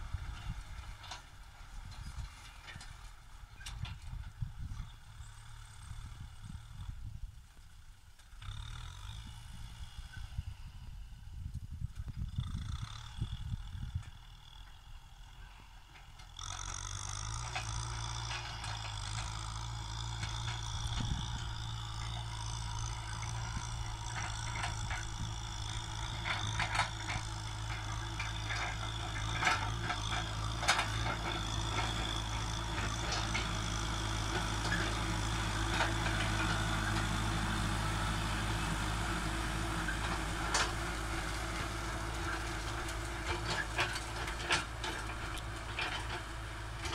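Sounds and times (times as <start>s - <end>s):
tractor diesel engine under load: 0.0s - 46.9s
plough knocks and clanks: 16.1s - 37.3s, 39.6s - 46.9s.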